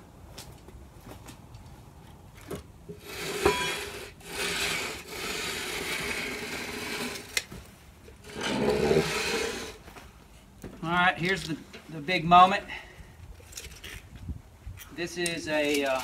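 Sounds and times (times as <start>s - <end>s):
wood scraping along wood: 3.0s - 10.0s.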